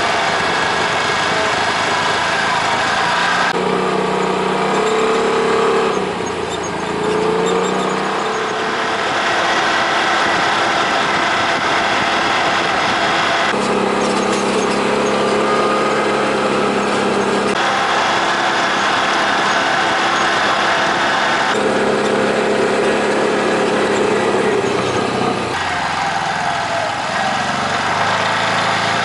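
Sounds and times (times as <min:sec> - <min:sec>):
off-road vehicle engine running: 0:00.0 - 0:29.0
tyre and road noise: 0:00.0 - 0:29.0.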